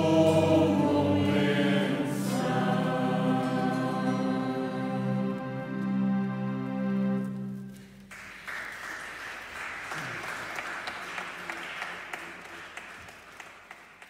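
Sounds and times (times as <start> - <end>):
held music chord: 0.0 - 8.0
audience applause: 8.1 - 14.0.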